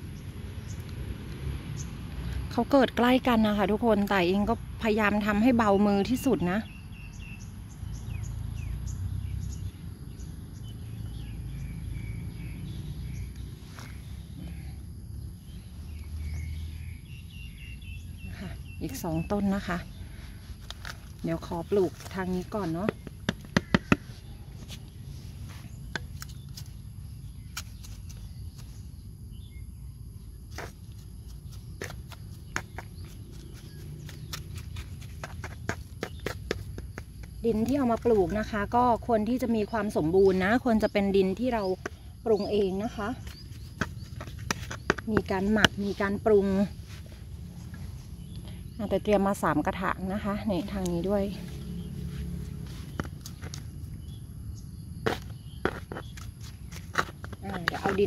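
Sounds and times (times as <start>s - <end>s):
small birds chirping: 0.0s - 58.0s
sharp taps on plastic pot: 22.8s - 24.1s.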